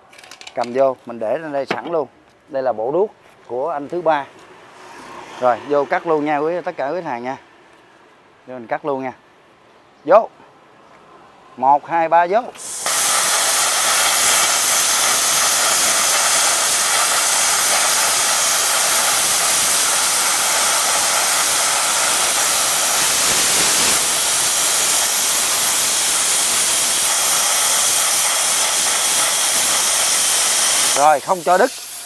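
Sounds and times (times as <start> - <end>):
plasma cutter hissing: 12.5 - 32.0.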